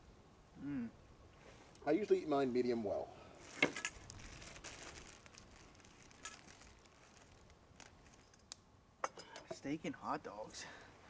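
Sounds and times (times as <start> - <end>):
foil crinkling: 3.4 - 8.6.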